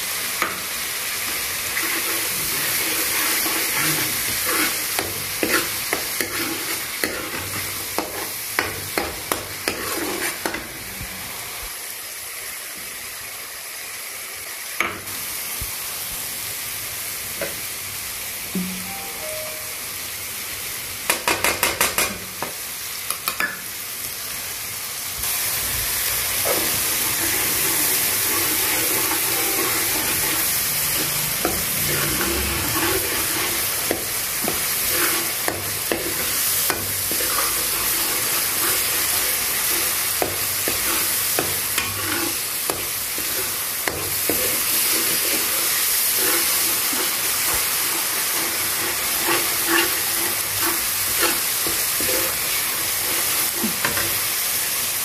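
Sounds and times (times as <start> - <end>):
paste sizzling in oil: 0.0 - 19.6, 20.4 - 55.0
metal spatula scraping a pan: 1.3 - 10.7, 26.4 - 54.2.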